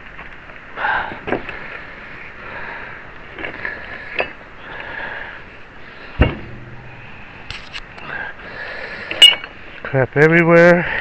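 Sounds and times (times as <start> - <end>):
heavy thump: 6.2 - 7.7.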